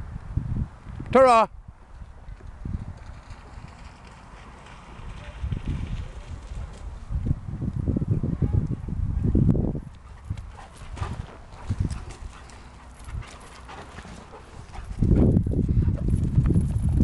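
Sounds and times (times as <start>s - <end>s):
dog panting and sniffing: 10.0s - 16.2s.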